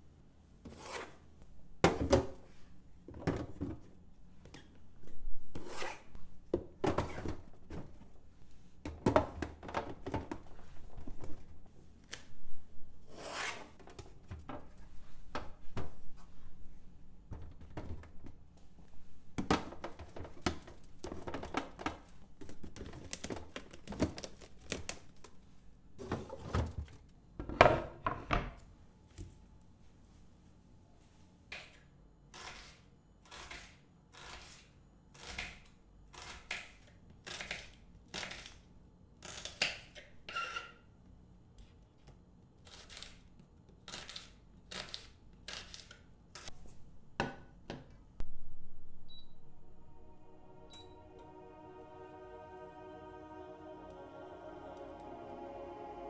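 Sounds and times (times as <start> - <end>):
evenly spaced strokes: 49.4 - 56.0.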